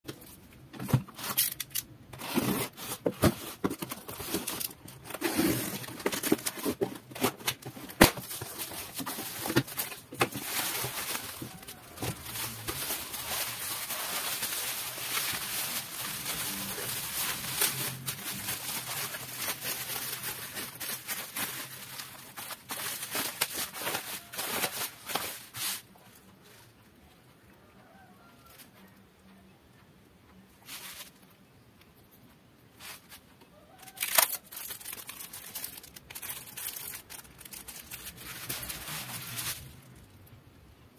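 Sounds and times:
bubble wrap crinkling: 0.1 - 26.6, 32.8 - 40.2
bubble wrap snapping: 4.0 - 25.9, 33.8 - 40.1.

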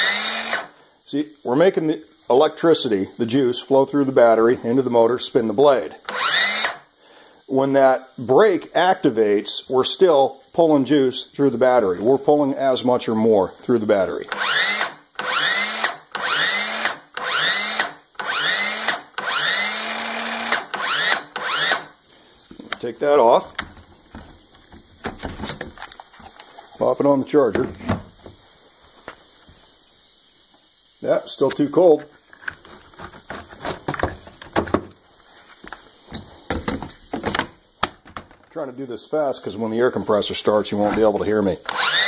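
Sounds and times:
circular saw motor whining: 0.0 - 0.7, 6.1 - 6.8, 14.3 - 21.9, 41.6 - 42.0.

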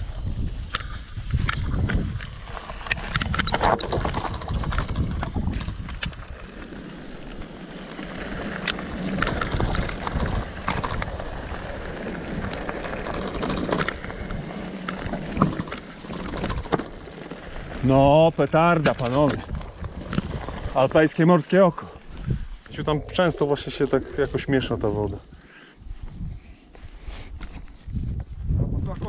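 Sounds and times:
wind rumbling on microphone: 0.0 - 29.0
bike clicks and rattles: 0.6 - 21.1
tyres crunching on loose rock: 1.4 - 21.6.

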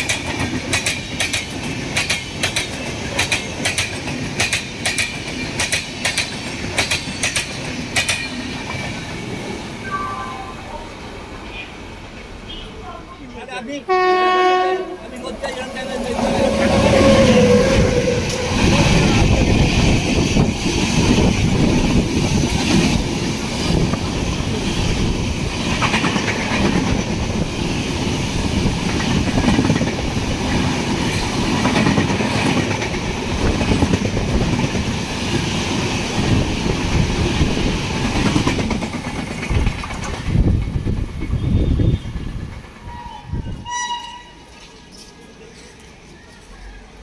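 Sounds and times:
train wheels clickety-clack: 0.0 - 9.4, 16.0 - 46.5
train horn: 13.9 - 15.1, 16.4 - 18.9, 42.8 - 44.5.

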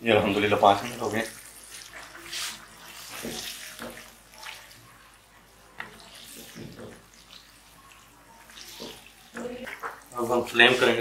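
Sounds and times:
spoon stirring sizzling gravy: 0.0 - 11.0.

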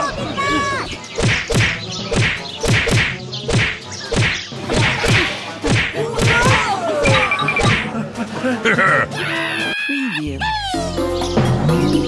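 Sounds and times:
punch sound effects: 1.2 - 7.9.

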